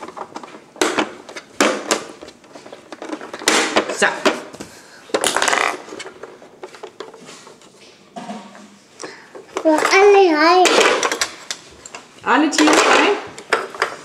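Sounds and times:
plastic toy clicks and knocks: 9.3 - 12.0, 12.6 - 14.0.

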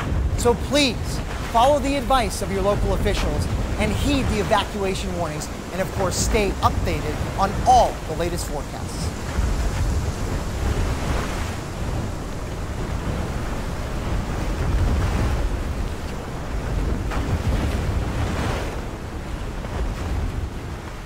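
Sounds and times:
rushing floodwater: 0.0 - 21.0
storm wind: 0.0 - 21.0.

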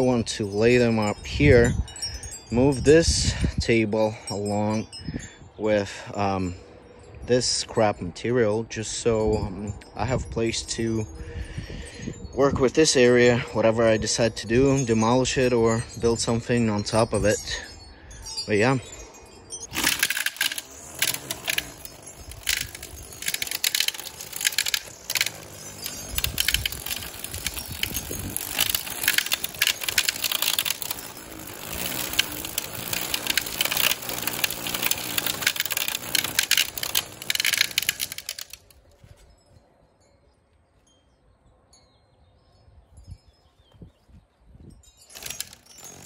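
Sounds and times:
string trimmer cutting grass: 19.6 - 38.7, 45.1 - 46.0.

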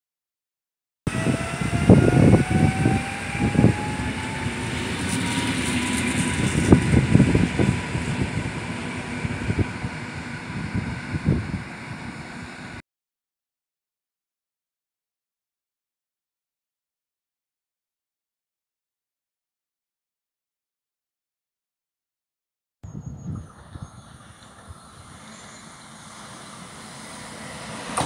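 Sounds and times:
electric train traction whine: 1.1 - 12.8, 23.5 - 28.0.

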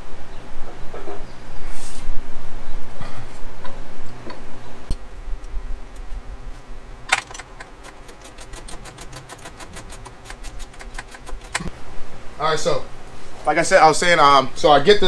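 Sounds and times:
socket ratchet clicking: 7.1 - 11.7.

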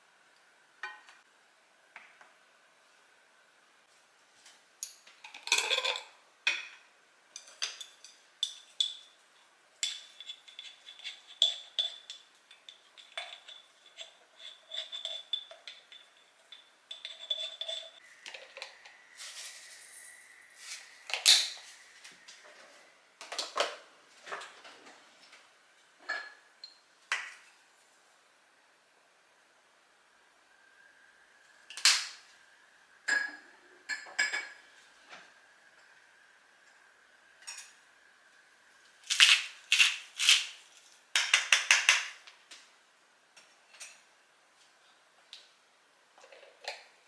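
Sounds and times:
glass jars clinking on countertop: 4.8 - 6.8
seeds shaken out: 19.2 - 21.0.

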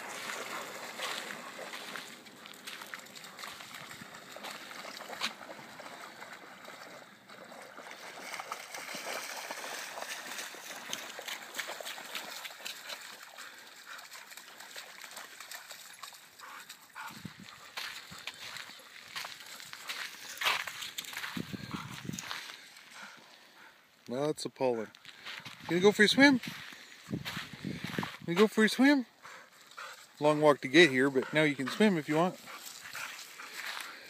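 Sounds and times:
dogs splashing in water: 0.0 - 23.2, 29.6 - 34.0.

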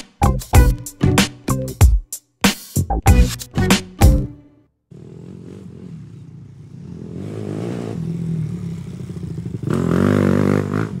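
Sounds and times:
motorcycle engine revving: 4.9 - 11.0.

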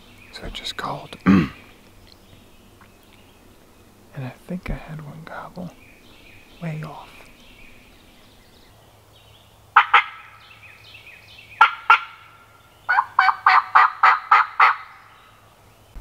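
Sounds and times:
turkey call notes: 9.8 - 10.6, 11.6 - 15.0.

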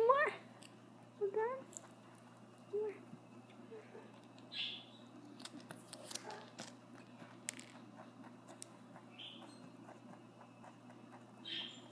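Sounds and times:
rabbit chewing: 0.6 - 11.9
rabbit crunching cracker: 5.1 - 11.6.

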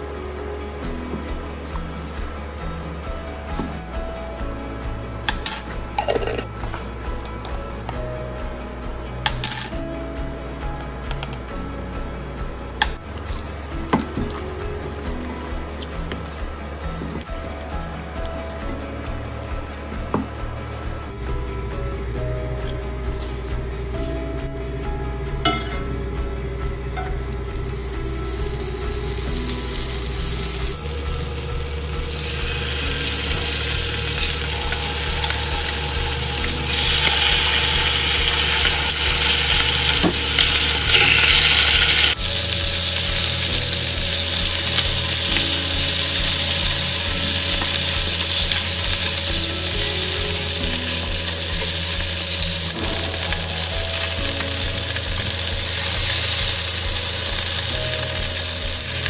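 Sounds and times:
chicken frying in a pan: 27.3 - 59.0.

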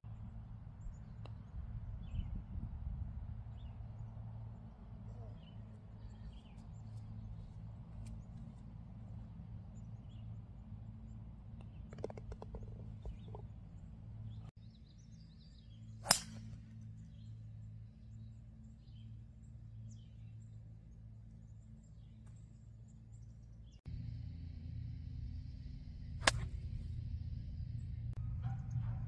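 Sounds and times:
golf putt clicks: 11.6 - 13.5
golf club striking ball: 11.7 - 13.4, 16.0 - 16.5, 26.2 - 26.8.

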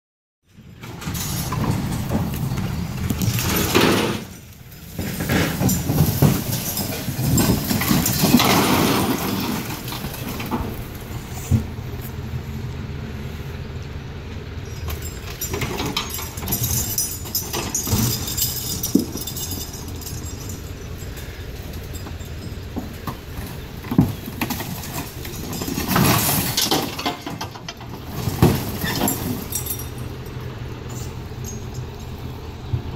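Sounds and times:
engine running: 0.4 - 32.9
sheet metal scraping and clanking: 0.8 - 11.8.

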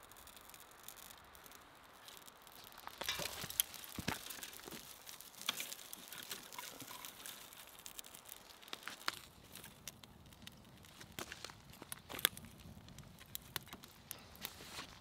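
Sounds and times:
campfire crackling: 0.0 - 15.0
dry twigs rustling: 0.0 - 15.0.

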